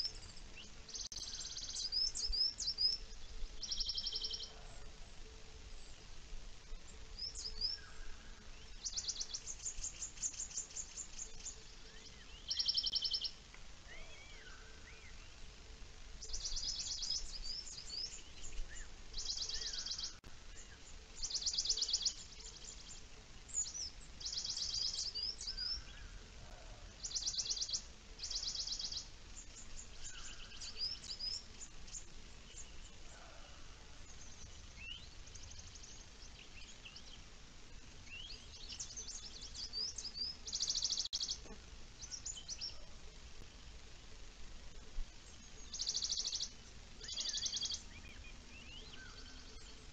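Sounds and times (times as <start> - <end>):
birds chirping: 0.0 - 43.8, 44.7 - 49.9
faint low rumble: 0.0 - 49.9.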